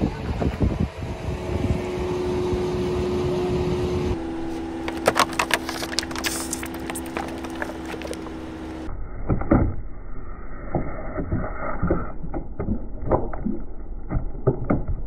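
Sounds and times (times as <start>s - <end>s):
plastic bottle crushed by tyre: 4.9s - 8.4s.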